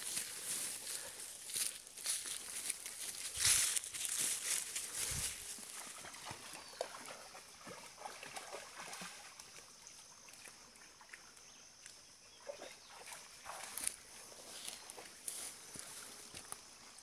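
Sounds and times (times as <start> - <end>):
dog splashing in muddy puddle: 5.5 - 9.6, 12.4 - 14.0.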